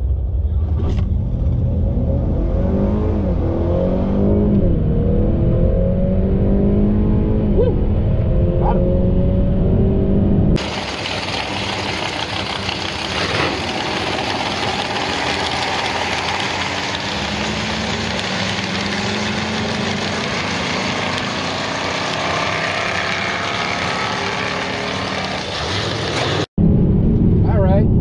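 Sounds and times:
cars racing at full throttle: 0:00.0 - 0:27.8.

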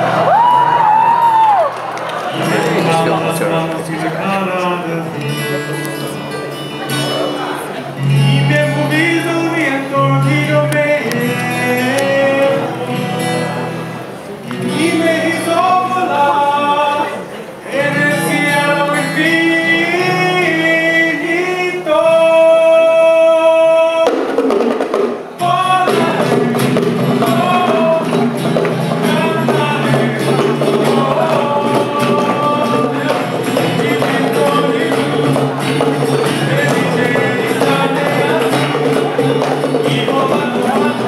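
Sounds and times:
acoustic guitars: 0:00.0 - 0:41.0
bongos playing: 0:02.2 - 0:07.2, 0:23.9 - 0:41.0
man singing: 0:02.3 - 0:24.4, 0:25.4 - 0:41.0.

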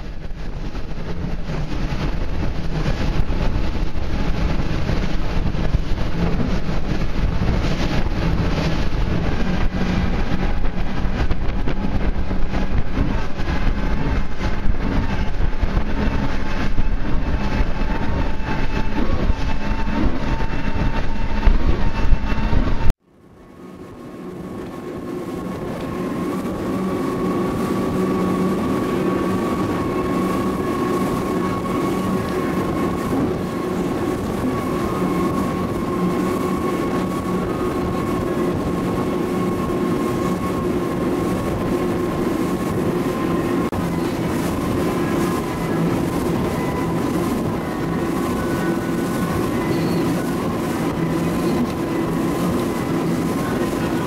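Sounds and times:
boat engine rumble: 0:00.0 - 0:54.0
wind rush: 0:00.0 - 0:54.0
water rushing: 0:23.7 - 0:54.0.

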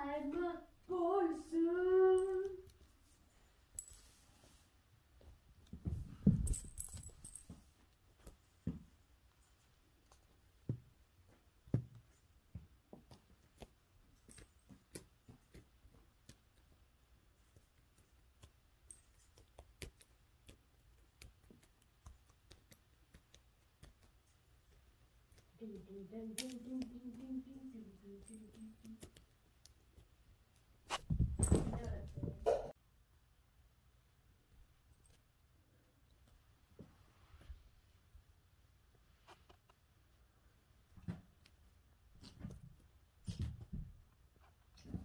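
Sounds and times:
faint clicks and light taps: 0:05.2 - 0:30.7.

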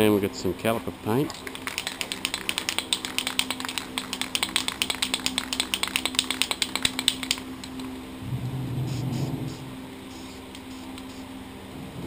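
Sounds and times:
aerosol can mixing ball rattling: 0:01.3 - 0:07.8.

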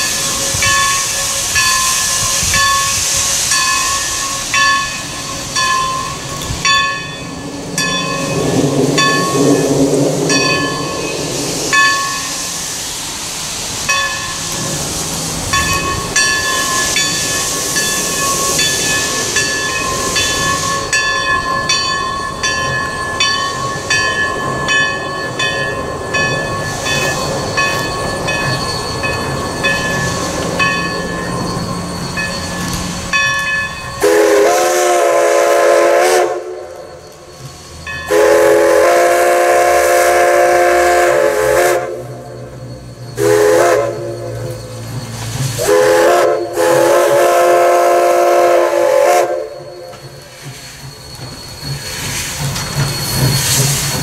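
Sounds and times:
crossing signal bell ringing: 0:00.0 - 0:12.6, 0:13.8 - 0:14.8, 0:15.4 - 0:47.7, 0:49.1 - 0:53.8
steam whistle: 0:34.0 - 0:37.0, 0:38.1 - 0:44.8, 0:45.5 - 0:50.2.

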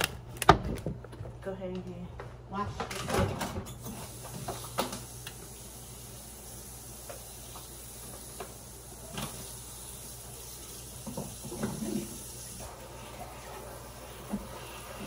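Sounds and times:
tap running into sink: 0:10.9 - 0:12.3.

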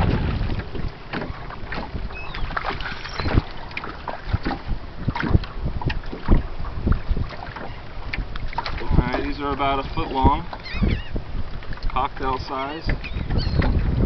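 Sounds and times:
waves slapping boat hull: 0:00.0 - 0:14.0
wind on microphone: 0:00.0 - 0:14.0
faint gull cries: 0:10.5 - 0:11.2.

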